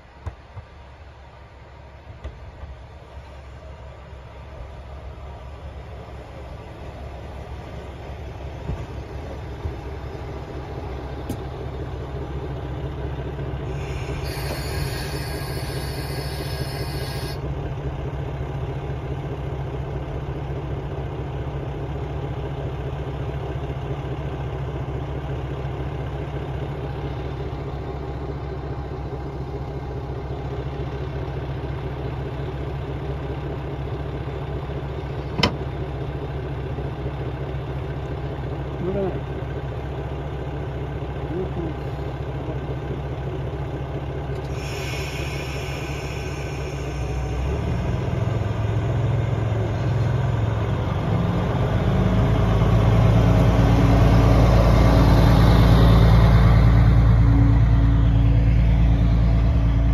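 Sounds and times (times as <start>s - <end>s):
diesel railcar engine idling: 0.0s - 59.9s
high ringing tone: 14.2s - 17.4s.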